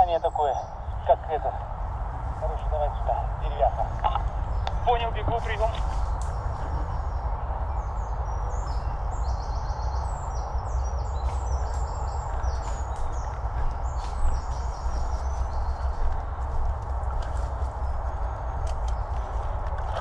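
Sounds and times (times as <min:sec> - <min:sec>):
wind rumble on microphone: 0:00.0 - 0:20.0
footsteps through undergrowth: 0:05.3 - 0:06.8, 0:11.0 - 0:20.0.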